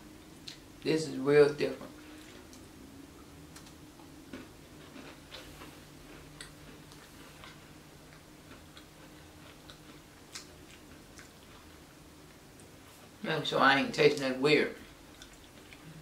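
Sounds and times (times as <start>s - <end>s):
low steady hum: 0.0s - 16.0s
people chewing cookies: 2.0s - 13.2s, 14.8s - 16.0s.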